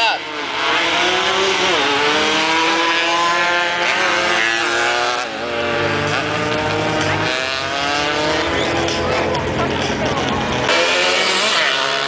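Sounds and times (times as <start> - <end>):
motorcycle engine accelerating: 0.0 - 12.0
deep engine rumble: 5.2 - 11.1.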